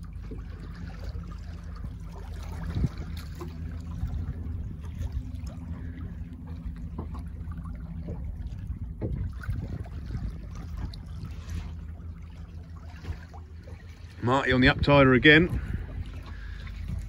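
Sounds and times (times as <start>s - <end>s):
water slapping boat hull: 0.0s - 17.0s
wind rumble on microphone: 0.0s - 17.0s.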